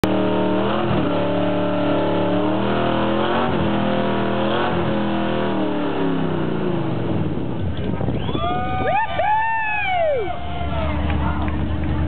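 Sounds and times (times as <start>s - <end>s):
motorcycle engine revving: 0.0s - 8.0s
tire spinning: 0.0s - 12.0s.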